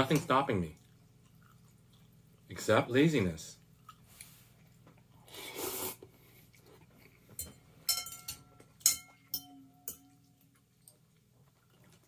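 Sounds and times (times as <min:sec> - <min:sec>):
tableware clinking: 0:07.3 - 0:10.4.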